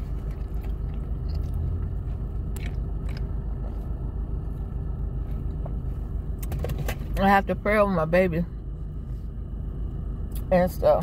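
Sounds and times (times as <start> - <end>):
person chewing food: 0.0 - 3.9
car cabin rumble: 0.0 - 11.0.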